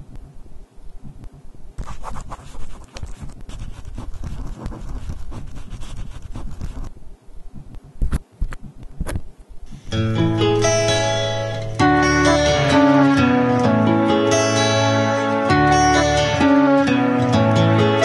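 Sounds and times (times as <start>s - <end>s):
pen scratching on paper: 1.8s - 6.9s.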